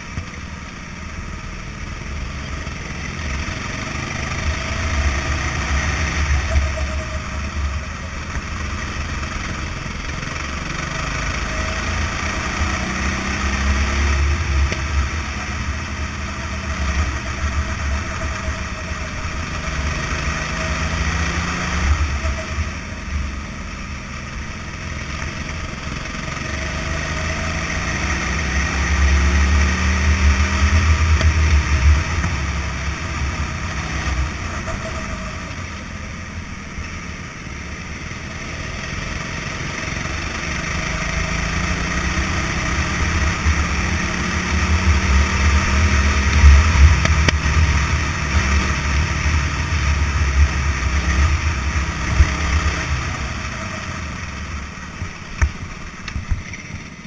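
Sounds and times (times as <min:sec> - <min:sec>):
go-kart engine revving: 0:00.0 - 0:57.0.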